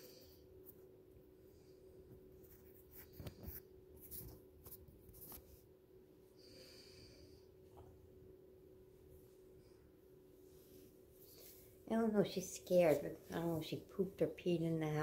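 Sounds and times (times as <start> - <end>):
soft rustles and clicks: 2.1 - 5.7.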